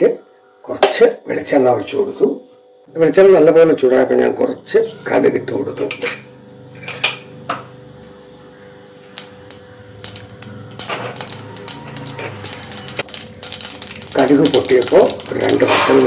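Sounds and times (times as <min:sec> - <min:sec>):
mustard seeds popping in hot oil: 0:08.9 - 0:16.0.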